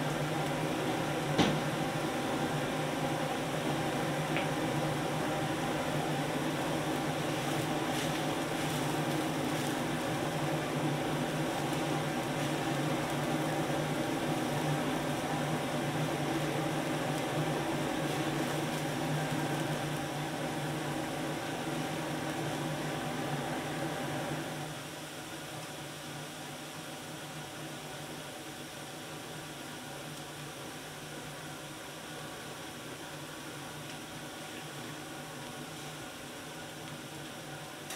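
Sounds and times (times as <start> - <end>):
kitchen extraction hum: 0.0 - 24.6
gas wok range roaring: 0.0 - 37.9
water boiling in a wok: 0.0 - 37.9.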